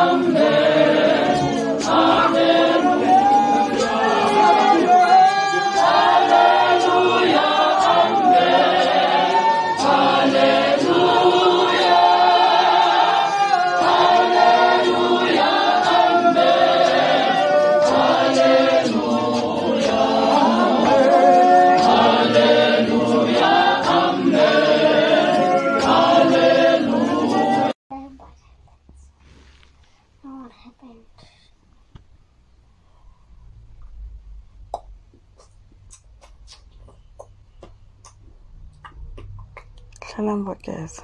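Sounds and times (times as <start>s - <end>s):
congregation singing: 0.0s - 27.8s.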